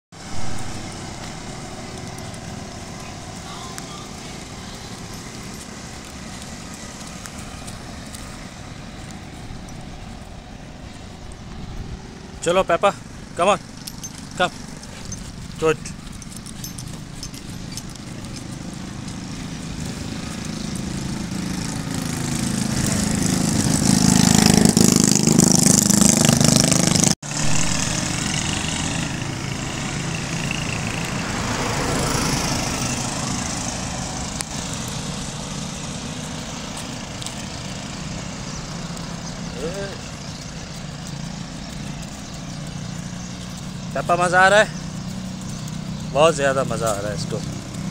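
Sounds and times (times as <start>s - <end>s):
vehicle engine passing: 0.1s - 47.9s.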